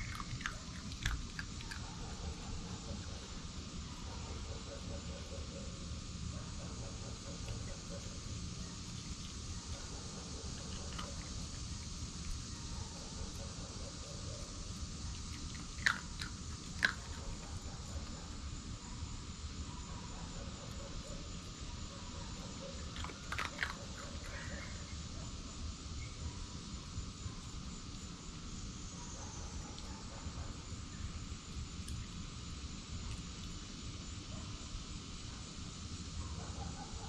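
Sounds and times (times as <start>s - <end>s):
fox crunching dry food: 0.0s - 3.4s, 7.2s - 13.6s, 14.2s - 18.2s, 22.8s - 24.9s
insects droning: 0.0s - 37.0s.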